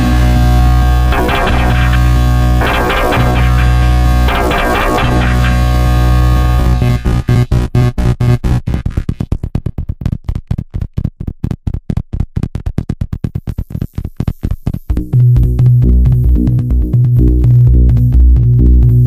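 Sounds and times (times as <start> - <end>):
stuttering synthesizer pulses: 0.0 - 10.6
dance beat with heavy bass: 0.0 - 19.0.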